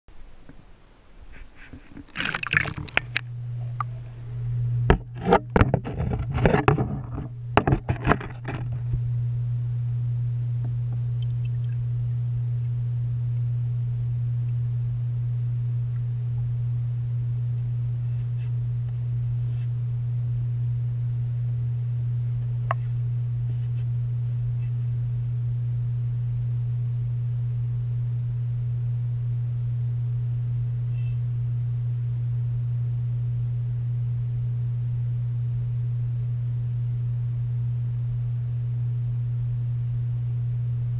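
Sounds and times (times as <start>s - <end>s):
underwater pump hum: 0.1s - 40.9s
water splashing: 1.6s - 4.3s, 10.9s - 11.9s.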